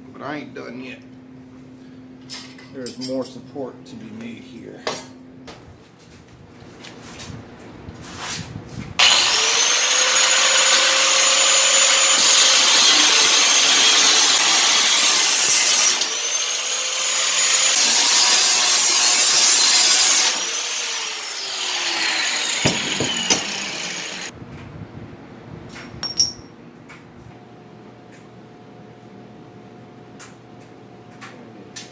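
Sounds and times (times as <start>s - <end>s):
angle grinder cutting steel: 9.0s - 24.3s
light metal clinks: 26.0s - 26.5s.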